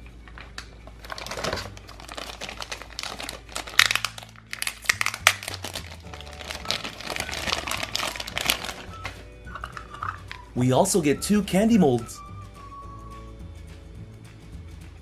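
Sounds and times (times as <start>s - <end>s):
plastic bag crinkling: 0.3s - 10.4s.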